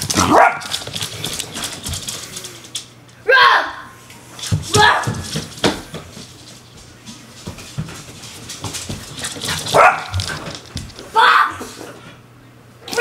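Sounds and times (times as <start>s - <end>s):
dog barking: 0.2s - 0.7s, 9.7s - 10.2s
footsteps on hardwood floor: 4.4s - 11.1s.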